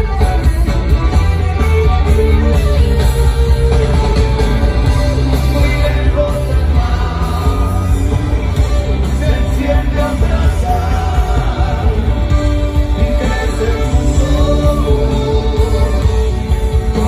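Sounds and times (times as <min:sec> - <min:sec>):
accordion: 0:00.0 - 0:17.0
electric guitar: 0:00.0 - 0:17.0
heavy bass and drums: 0:00.0 - 0:17.0
sung vocals: 0:05.0 - 0:17.0.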